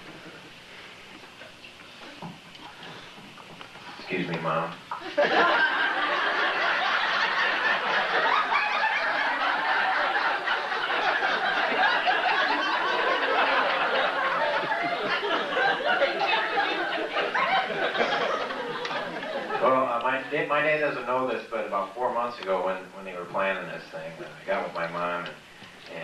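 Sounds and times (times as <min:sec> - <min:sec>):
crowd laughing: 0:05.0 - 0:20.4.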